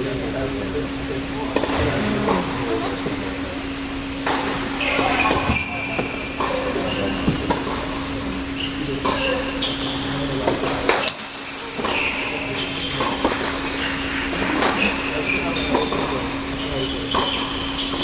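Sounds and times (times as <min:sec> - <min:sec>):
steady hum: 0:00.0 - 0:17.9
shoes squeaking on court: 0:08.6 - 0:10.1, 0:11.8 - 0:13.0, 0:14.8 - 0:18.0.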